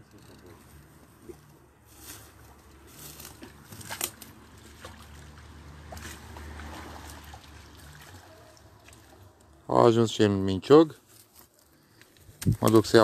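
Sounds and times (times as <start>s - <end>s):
water splashing and sloshing: 1.2s - 9.7s.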